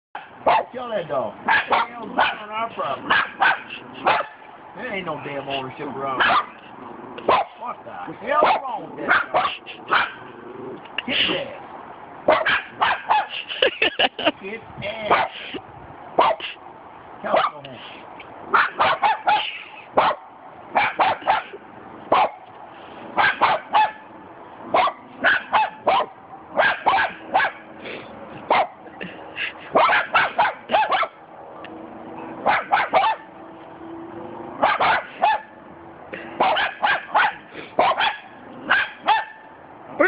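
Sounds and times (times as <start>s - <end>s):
dog barking sharply: 0.2s - 0.7s, 1.4s - 4.5s, 6.2s - 6.6s, 7.2s - 7.6s, 8.4s - 10.3s, 12.3s - 13.4s, 15.1s - 15.4s, 16.2s - 16.6s, 17.3s - 17.6s, 18.5s - 22.4s, 23.2s - 24.1s, 24.8s - 27.7s, 28.5s - 28.8s, 29.8s - 31.2s, 32.4s - 33.3s, 34.6s - 35.6s, 36.4s - 39.5s.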